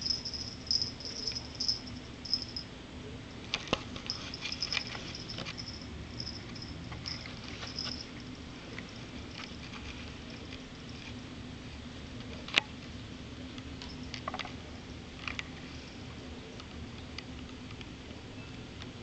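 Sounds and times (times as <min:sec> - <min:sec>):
kitten scratching sisal: 0:03.8 - 0:11.2.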